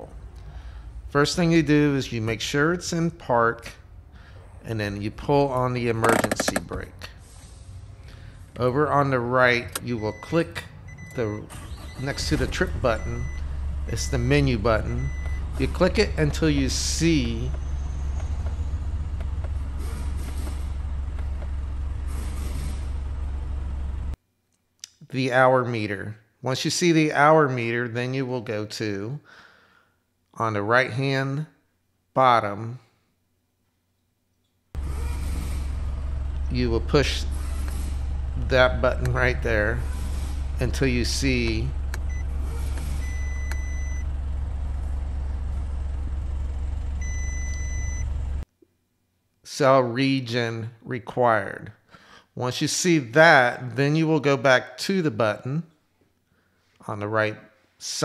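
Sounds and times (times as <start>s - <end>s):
dashboard beep: 9.9s - 12.3s, 12.9s - 13.4s, 14.0s - 15.5s, 42.0s - 42.3s, 43.0s - 44.0s, 47.0s - 48.1s
diesel engine idling: 12.0s - 24.2s, 34.8s - 48.4s.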